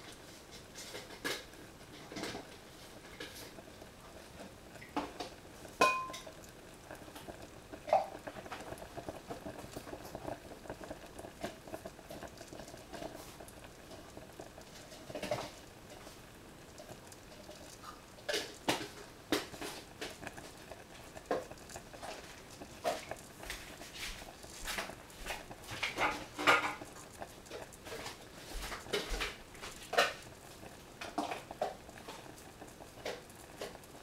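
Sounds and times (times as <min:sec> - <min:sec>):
pans simmering and bubbling: 0:00.0 - 0:34.0.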